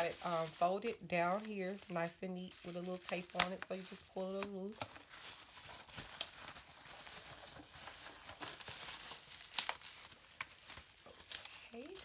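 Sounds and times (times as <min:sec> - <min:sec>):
bubble wrap crinkling: 0:00.0 - 0:12.0
bubble wrap snaps: 0:00.0 - 0:12.0.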